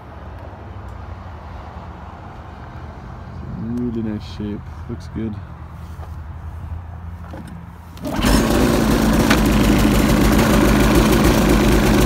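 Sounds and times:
snowmobile engine starting and idling: 8.0s - 12.0s.

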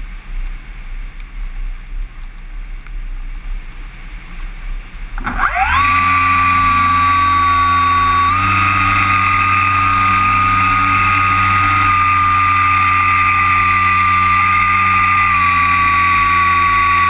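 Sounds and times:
electric motor whine: 5.2s - 17.0s.

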